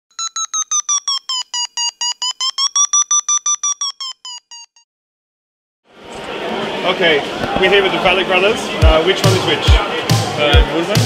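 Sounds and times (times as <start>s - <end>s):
short electronic beeps: 0.1s - 4.8s.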